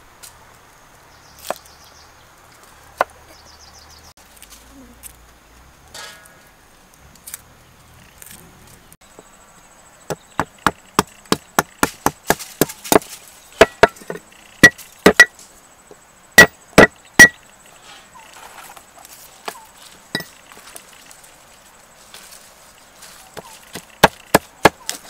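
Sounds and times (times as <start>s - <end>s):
cleaver chopping on wood: 10.1s - 15.4s, 16.4s - 17.4s, 23.4s - 25.0s.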